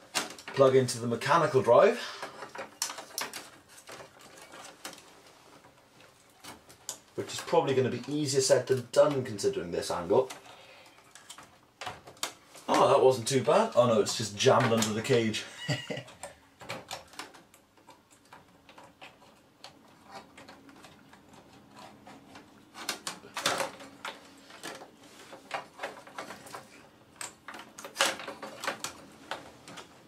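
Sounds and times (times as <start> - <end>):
plastic connectors clicking: 2.3 - 5.0.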